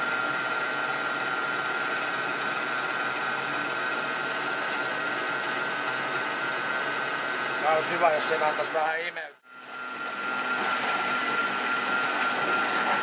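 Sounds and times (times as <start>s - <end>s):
brush wheel motor whirring: 9.6s - 13.0s.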